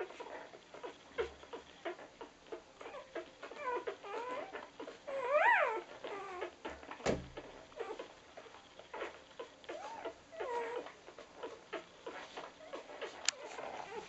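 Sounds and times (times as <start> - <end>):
puppies suckling: 0.0 - 14.0
puppy squealing: 0.0 - 14.0
puppy whimpering: 0.0 - 14.0.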